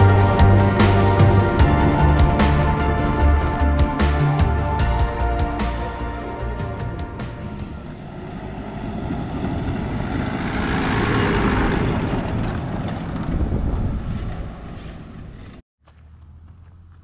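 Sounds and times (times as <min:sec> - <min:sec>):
vehicle driving past on dirt: 0:07.2 - 0:17.0.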